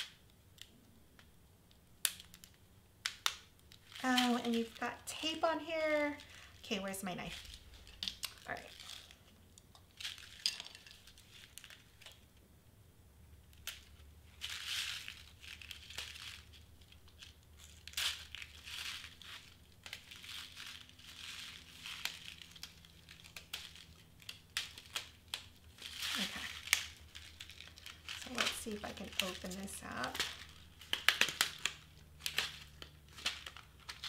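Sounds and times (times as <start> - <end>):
small plastic clicks: 0.0 - 4.0
crinkling rustles: 0.0 - 12.4, 13.4 - 34.0.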